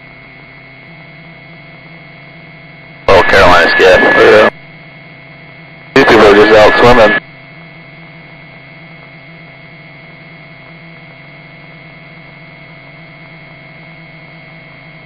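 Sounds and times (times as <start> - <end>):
radio electrical hum and hiss: 0.2 - 13.4
constant tones: 5.8 - 7.2.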